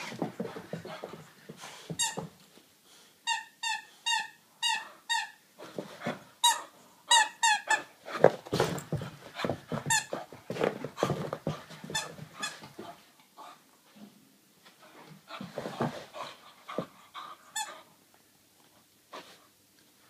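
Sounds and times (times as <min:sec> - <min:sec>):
rustling and scuffling: 0:00.0 - 0:02.7, 0:05.6 - 0:06.4, 0:08.0 - 0:13.2, 0:13.9 - 0:17.2
squeaky dog toy squeaking: 0:03.2 - 0:05.4, 0:06.4 - 0:07.9.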